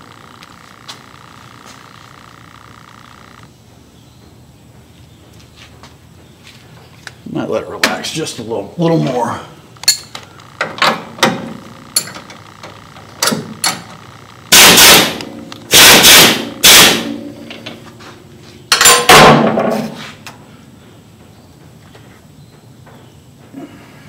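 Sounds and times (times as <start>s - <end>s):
sharp metallic clicks: 9.8s - 17.7s
power ratchet bursts: 14.5s - 17.1s.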